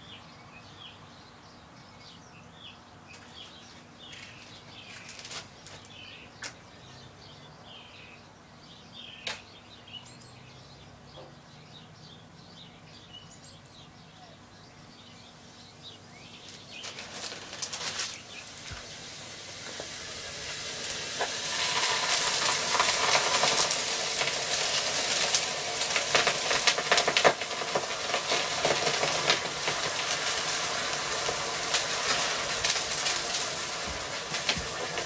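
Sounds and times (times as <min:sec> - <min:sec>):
crackles and pops: 0:16.4 - 0:35.0
smoke bomb hissing: 0:18.4 - 0:35.0.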